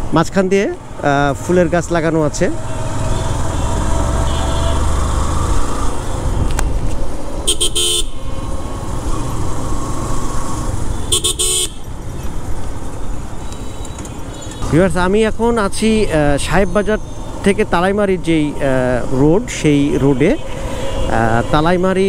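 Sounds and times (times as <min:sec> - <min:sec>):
vehicle horn toots: 0:02.7 - 0:04.9, 0:07.5 - 0:08.2, 0:11.0 - 0:11.8
wind noise: 0:06.0 - 0:07.3.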